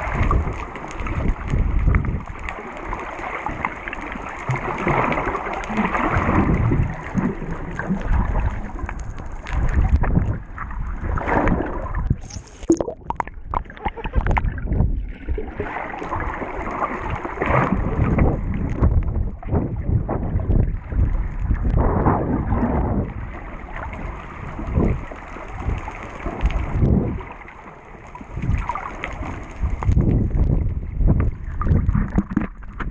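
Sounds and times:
underwater churning and bubbling: 0:00.0 - 0:32.9.

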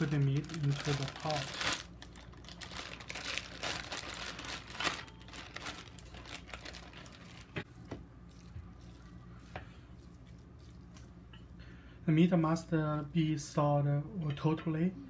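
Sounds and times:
plastic bag crinkling: 0:00.0 - 0:07.6.

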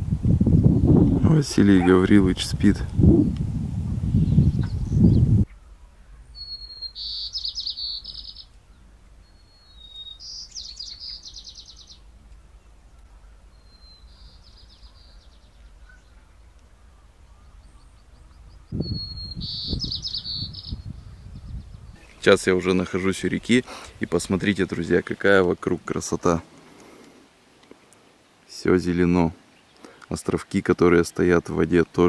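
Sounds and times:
wind rumble: 0:00.0 - 0:24.8
songbird singing trills: 0:04.0 - 0:25.7.

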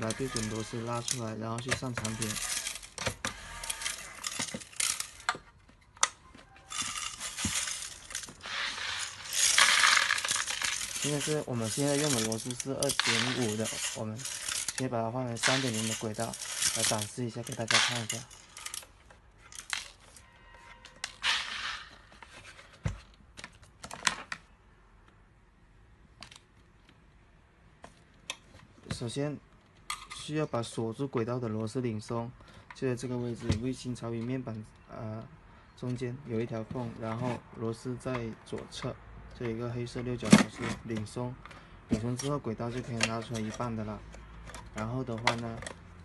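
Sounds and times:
metal screws rattling in a feeder: 0:00.0 - 0:05.2, 0:06.7 - 0:18.9.

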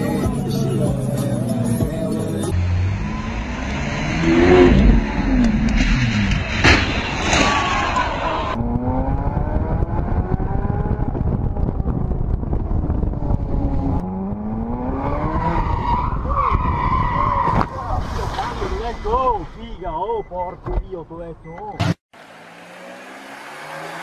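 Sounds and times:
sports car engine revving: 0:00.0 - 0:06.6
car engine accelerating through gears: 0:00.7 - 0:06.6, 0:08.5 - 0:16.0, 0:22.2 - 0:24.0.

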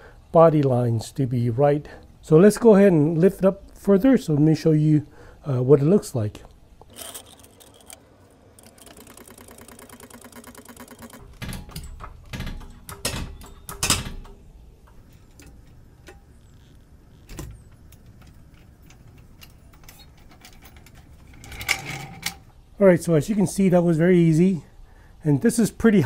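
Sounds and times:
rapid mechanical clicking: 0:06.8 - 0:21.8.

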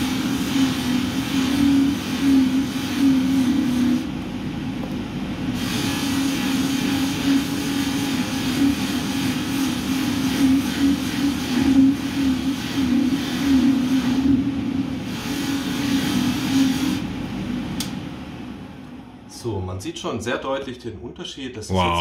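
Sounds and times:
polishing machine motor hum: 0:00.0 - 0:04.2, 0:05.5 - 0:17.1.

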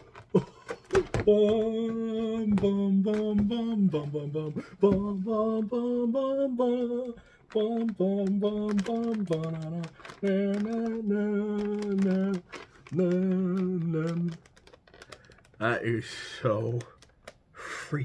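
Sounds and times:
man singing wordless tune: 0:01.0 - 0:14.5
sharp clicks: 0:06.4 - 0:15.7.

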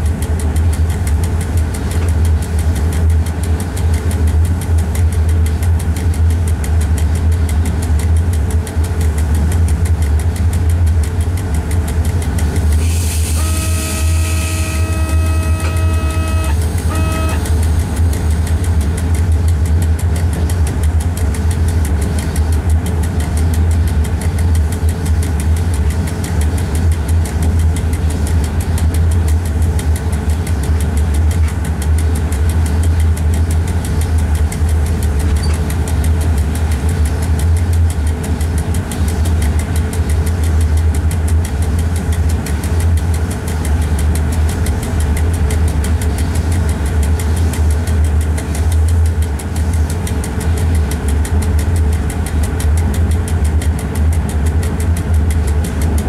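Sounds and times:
train rumbling: 0:00.0 - 0:56.0
train horn: 0:12.8 - 0:17.7.

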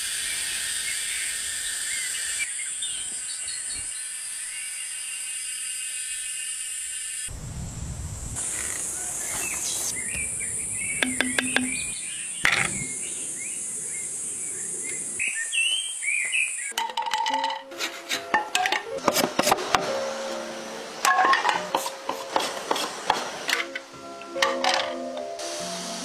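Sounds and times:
high hiss: 0:00.0 - 0:16.7, 0:25.0 - 0:26.0
low rumble: 0:07.3 - 0:08.5
birds chirping: 0:08.4 - 0:16.8.

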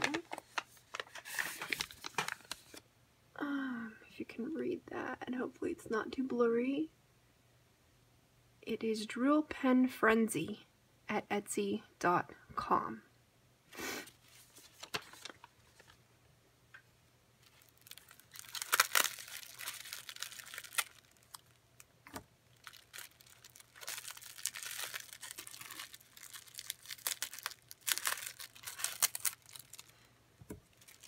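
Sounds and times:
foil gift wrap crinkling: 0:00.0 - 0:02.8, 0:14.2 - 0:16.0, 0:17.4 - 0:31.0.

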